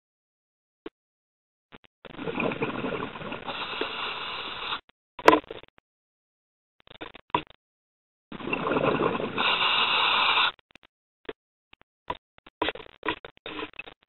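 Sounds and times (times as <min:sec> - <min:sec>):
bubbles rushing: 0:02.1 - 0:04.6, 0:08.3 - 0:10.3
diver breathing through regulator: 0:02.4 - 0:04.8, 0:08.4 - 0:10.6.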